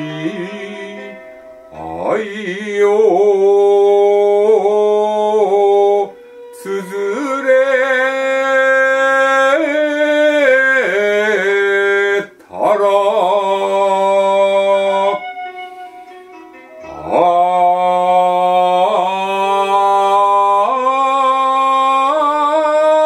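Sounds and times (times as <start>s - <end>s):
person chanting in long held notes: 0.0s - 15.9s, 16.8s - 23.0s
short breaths: 6.1s - 6.5s.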